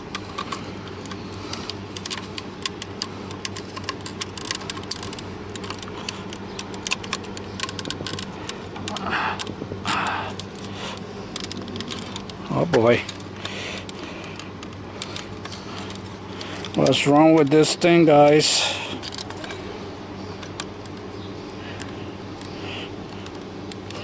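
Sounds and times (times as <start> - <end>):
steady low hum: 0.0 - 24.0
plastic clicks and rattles: 0.1 - 9.6, 10.3 - 17.6, 19.0 - 19.6.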